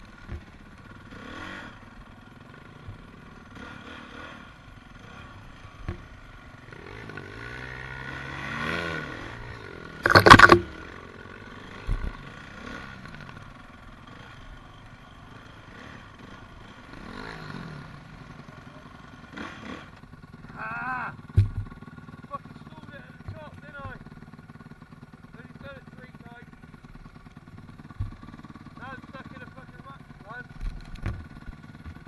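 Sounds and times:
dirt bike engines revving: 0.0 - 32.0
light knocks and clatter: 21.3 - 21.8, 27.9 - 28.3, 30.6 - 32.0.

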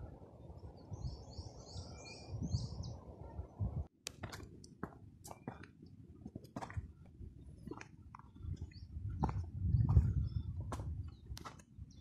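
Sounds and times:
songbird chirping: 0.4 - 3.6
footsteps on stony dirt trail: 4.1 - 11.7.

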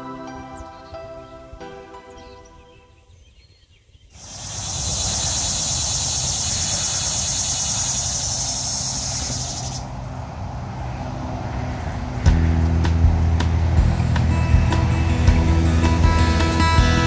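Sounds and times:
background music: 0.0 - 3.0, 12.3 - 17.0
insect chorus: 3.0 - 12.4
low outdoor rumble: 4.2 - 17.0.

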